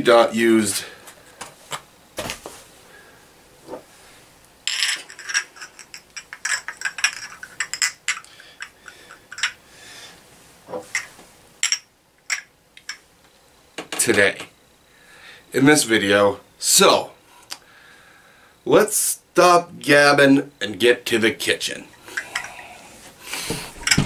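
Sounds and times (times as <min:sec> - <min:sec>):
glass bottles clinking: 0:04.7 - 0:09.6, 0:10.9 - 0:13.0, 0:22.1 - 0:22.8, 0:23.7 - 0:24.0.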